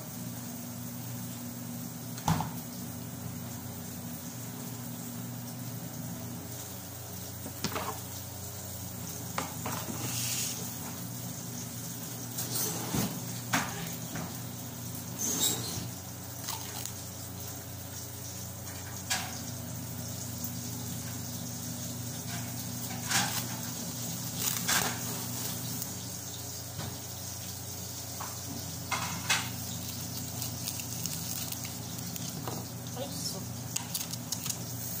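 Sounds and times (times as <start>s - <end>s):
plastic crinkling: 16.4s - 17.1s, 23.0s - 26.0s, 29.3s - 32.8s, 33.7s - 35.0s.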